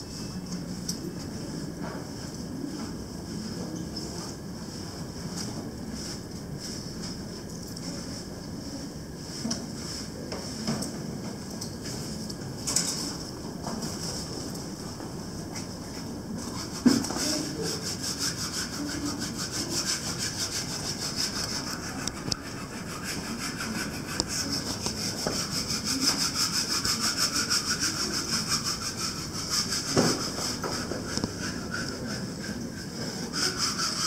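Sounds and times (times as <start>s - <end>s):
scrubbing strokes: 16.3s - 34.0s.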